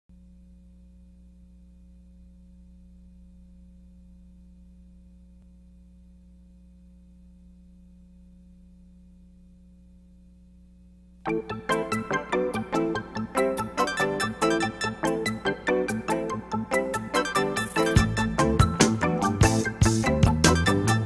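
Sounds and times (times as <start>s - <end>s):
low electrical hum: 0.1s - 11.4s.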